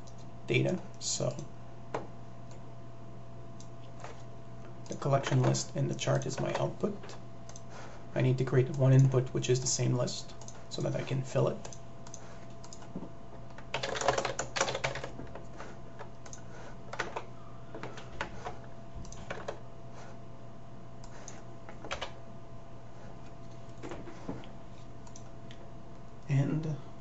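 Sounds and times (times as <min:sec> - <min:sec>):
faint steady hum: 0:00.0 - 0:27.0
keyboard typing: 0:10.3 - 0:19.6, 0:21.0 - 0:22.2, 0:25.0 - 0:25.3.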